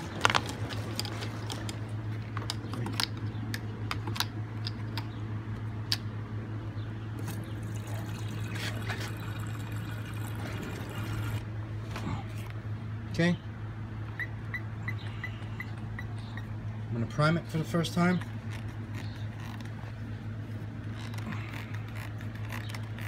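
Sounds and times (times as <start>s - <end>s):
steady low hum: 0.0s - 23.0s
fuel being poured: 7.2s - 11.4s.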